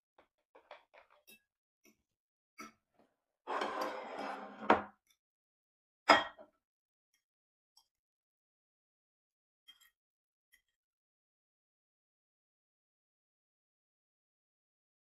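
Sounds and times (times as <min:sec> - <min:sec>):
ceramic plate scraping and clattering: 0:03.5 - 0:04.9.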